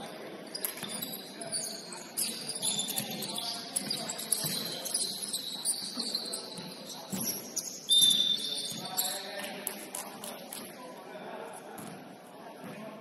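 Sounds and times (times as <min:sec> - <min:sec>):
shoes squeaking on gym floor: 0:00.0 - 0:10.8
ball bouncing thumps: 0:06.6 - 0:07.5.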